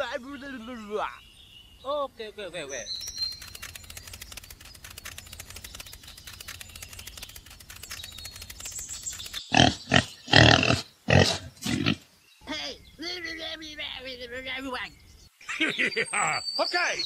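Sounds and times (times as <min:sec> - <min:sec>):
faint rapid ticking: 0:02.9 - 0:09.6
pig grunts: 0:09.5 - 0:12.0.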